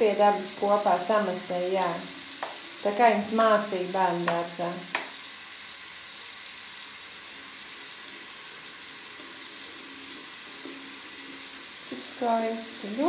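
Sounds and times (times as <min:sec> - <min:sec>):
tap water splashing into basin: 0:02.3 - 0:05.3.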